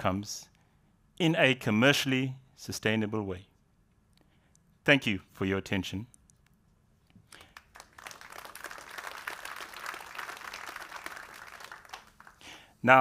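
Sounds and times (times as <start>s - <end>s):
audience applauding: 7.3s - 12.6s.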